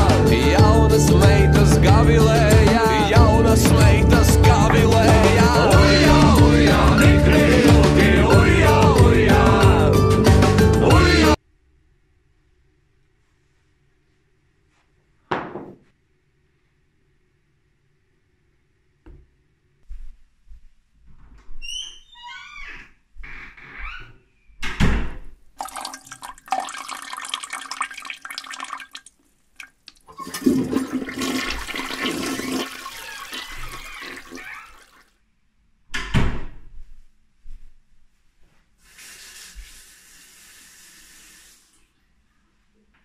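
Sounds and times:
door thumping shut: 4.4s - 5.4s, 15.3s - 15.8s
tap running at sink: 25.6s - 35.0s
toilet flushing: 25.6s - 35.1s.

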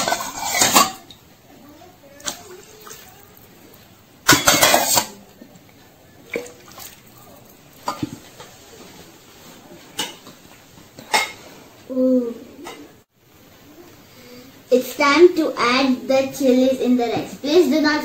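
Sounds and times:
steel and glass dishes clinking: 0.0s - 1.1s, 4.2s - 5.2s, 6.4s - 8.6s, 11.0s - 11.4s
water splashing into bowl: 2.2s - 5.1s, 6.2s - 8.6s.

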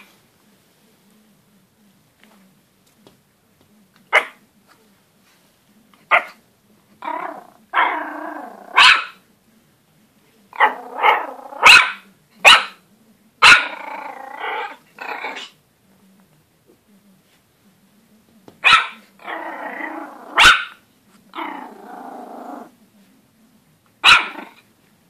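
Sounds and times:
growly barks: 7.0s - 9.2s, 10.6s - 12.8s, 13.4s - 15.6s, 18.6s - 22.7s, 24.0s - 24.6s
puppy yapping: 20.3s - 20.8s, 24.0s - 24.6s.

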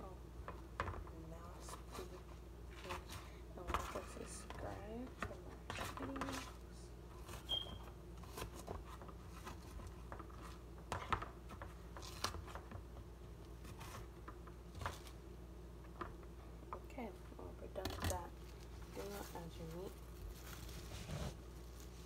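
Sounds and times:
scraping and handling noises: 0.4s - 15.2s, 15.8s - 22.0s.

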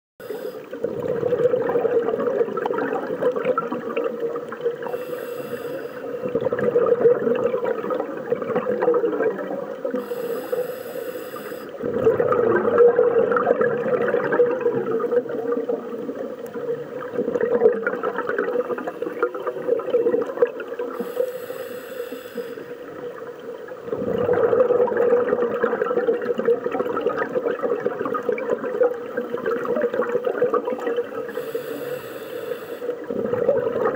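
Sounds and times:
diver breathing through regulator: 0.2s - 0.8s, 4.8s - 6.4s, 9.9s - 11.8s, 20.9s - 22.9s, 31.2s - 33.1s
bubbling exhale: 0.2s - 15.9s, 23.8s - 28.3s, 29.1s - 33.9s
underwater hum: 0.2s - 33.9s.

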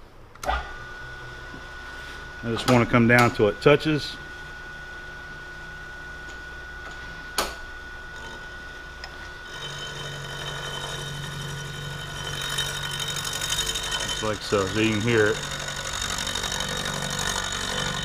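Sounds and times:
milling machine spindle running: 0.4s - 18.0s
end mill cutting metal ticking: 9.0s - 18.0s.

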